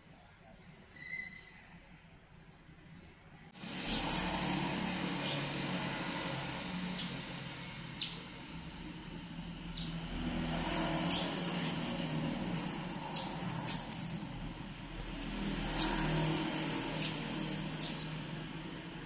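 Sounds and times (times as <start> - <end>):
high bird chirps: 1.0 - 1.7
low engine hum: 3.6 - 19.0.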